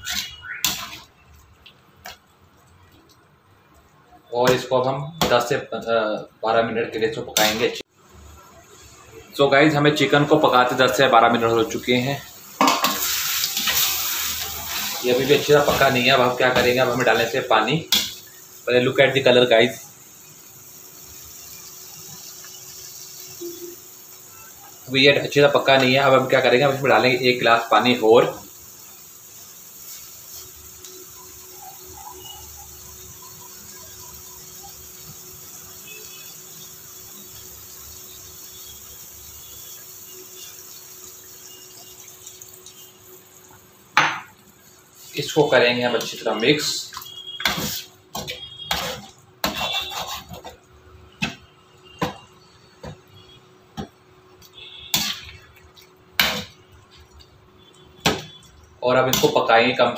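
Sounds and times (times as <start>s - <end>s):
steady hiss: 7.3s - 50.6s
spatula scraping metal pot: 47.4s - 50.6s.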